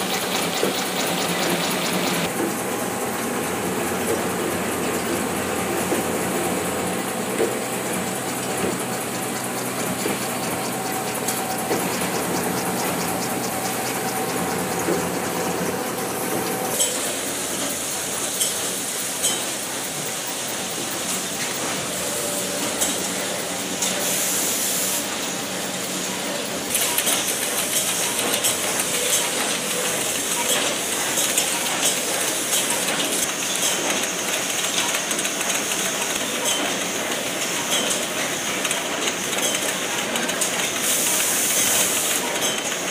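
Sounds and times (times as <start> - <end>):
machine clattering and ticking: 0.0 - 2.6, 7.2 - 17.7, 26.7 - 42.9.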